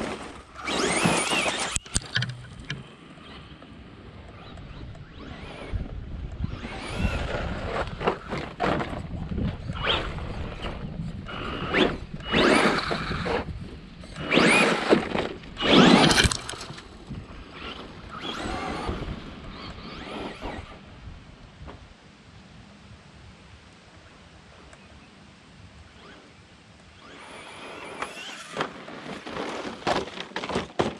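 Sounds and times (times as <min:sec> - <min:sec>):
tyres scrabbling through dirt: 0:00.0 - 0:03.6, 0:04.3 - 0:20.9, 0:27.0 - 0:30.9
rc truck motor whining: 0:00.0 - 0:21.3, 0:25.8 - 0:30.0.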